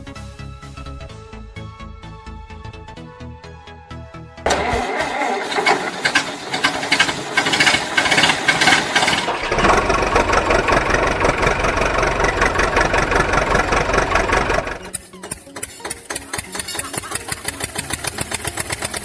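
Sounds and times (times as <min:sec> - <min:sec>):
diesel engine clattering: 0:04.5 - 0:19.0.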